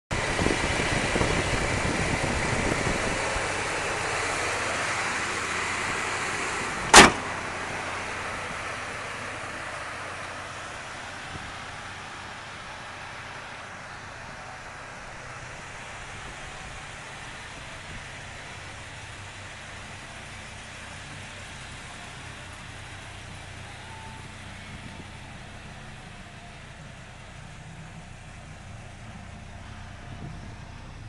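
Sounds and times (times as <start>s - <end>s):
truck engine idling: 0.1s - 31.0s
hood slammed shut: 6.8s - 8.1s.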